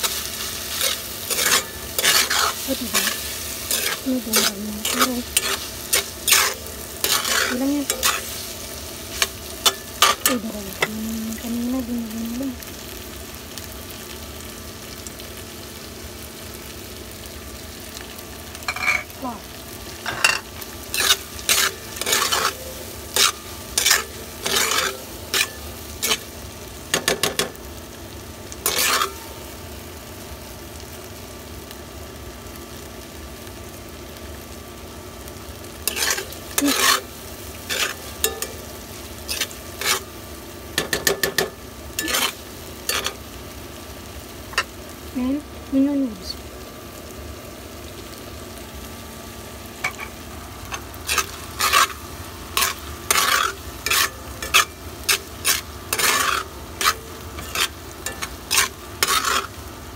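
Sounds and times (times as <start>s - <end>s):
spatula scraping and stirring: 0.0s - 10.9s, 20.0s - 27.6s, 28.6s - 29.4s, 35.8s - 40.2s, 40.8s - 43.2s, 49.8s - 59.6s
meat and tofu sizzling in a wok: 0.0s - 59.9s.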